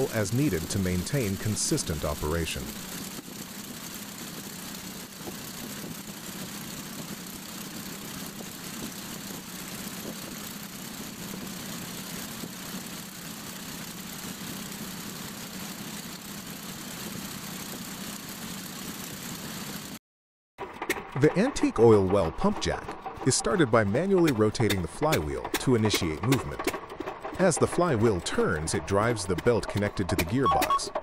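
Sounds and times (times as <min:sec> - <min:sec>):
aircraft engine idling: 0:00.0 - 0:20.0, 0:20.6 - 0:31.0.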